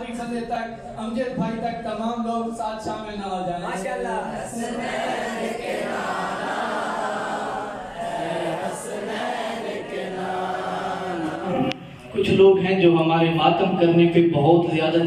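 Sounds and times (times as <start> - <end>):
men chanting together: 4.2 - 12.1.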